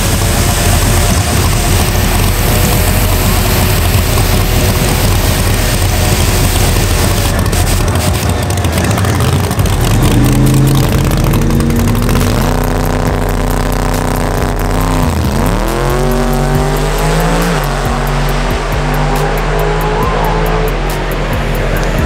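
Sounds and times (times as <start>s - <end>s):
drag racing car engines revving: 0.0s - 22.0s.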